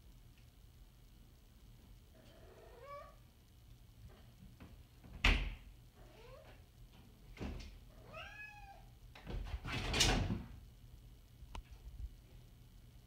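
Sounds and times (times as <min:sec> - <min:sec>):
cat meowing: 0:02.2 - 0:03.2, 0:08.0 - 0:08.9.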